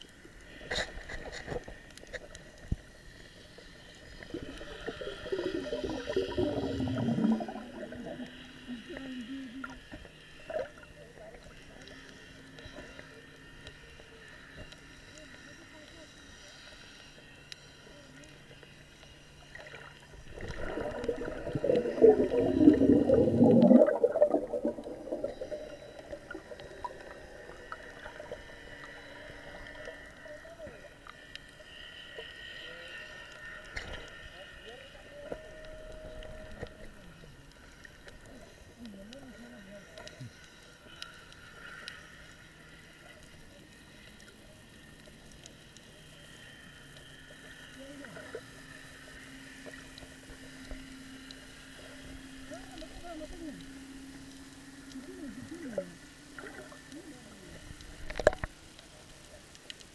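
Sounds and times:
underwater gurgling and bubbling: 2.4s - 11.6s, 19.4s - 31.1s, 54.8s - 59.1s
muffled wavering tone: 4.1s - 9.8s, 17.8s - 31.0s, 34.6s - 40.3s.

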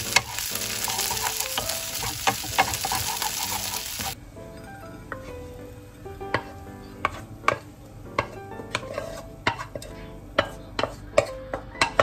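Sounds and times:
wooden spatula knocking on a pan: 1.0s - 3.5s.

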